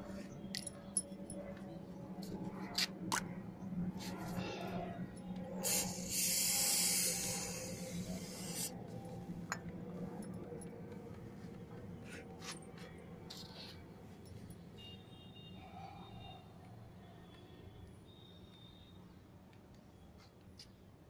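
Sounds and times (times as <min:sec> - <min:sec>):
aerosol spray hissing: 0:05.6 - 0:08.8.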